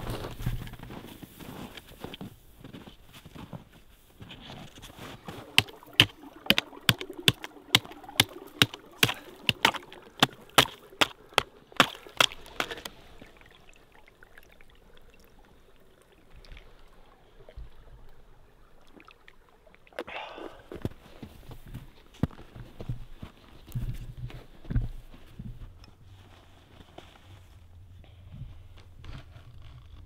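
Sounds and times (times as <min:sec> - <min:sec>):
footsteps crunching on frozen snow: 0:00.0 - 0:12.9
water trickling into bottle: 0:04.6 - 0:17.8.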